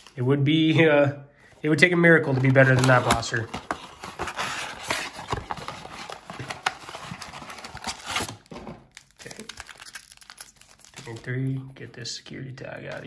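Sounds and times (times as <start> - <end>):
cardboard box rustling: 2.2 - 8.7.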